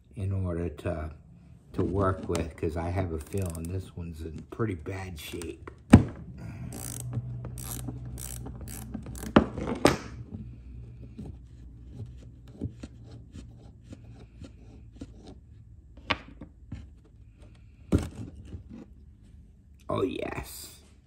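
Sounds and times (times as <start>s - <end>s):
ratchet wrench clicking: 3.2s - 3.7s, 6.6s - 9.4s.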